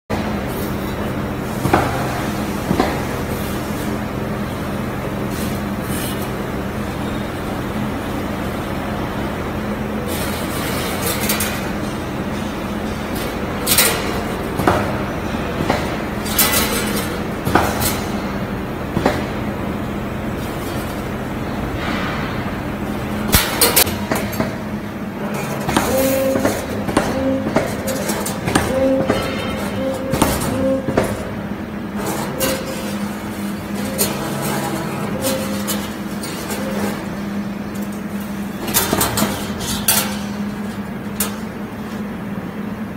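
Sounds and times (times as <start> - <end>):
machine motor hum: 0.1 - 42.9
metallic clicks and clanks: 10.1 - 18.3.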